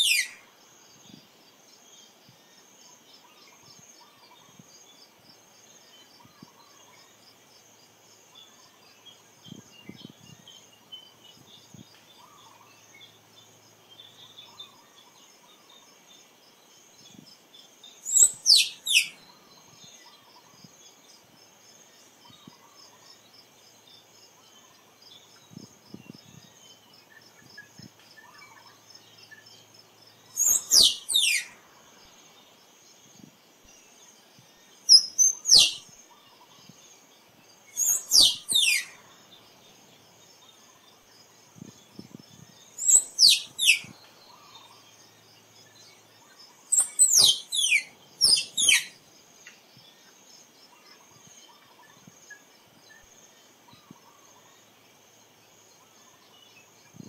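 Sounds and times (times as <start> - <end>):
squirrel calling: 0.0 - 0.4, 18.1 - 19.2, 30.3 - 31.6, 34.9 - 35.8, 37.8 - 39.0, 42.8 - 44.7, 46.7 - 49.0
faint insect hum: 0.0 - 57.0.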